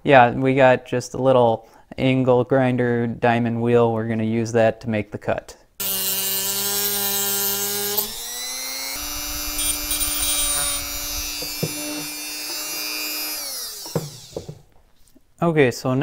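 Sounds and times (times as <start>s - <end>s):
cut-off wheel cutting metal: 5.8s - 14.6s
rotary tool whine: 5.8s - 14.7s.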